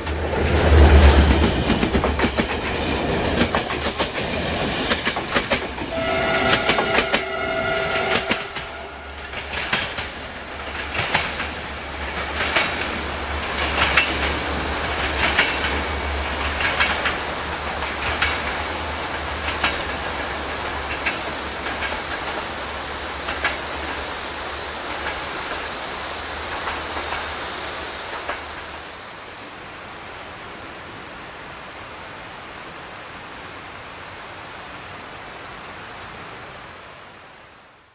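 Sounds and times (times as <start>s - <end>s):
train wheels clicking over rail joints: 0.0s - 7.3s, 7.9s - 29.0s
rain hissing: 0.0s - 37.9s.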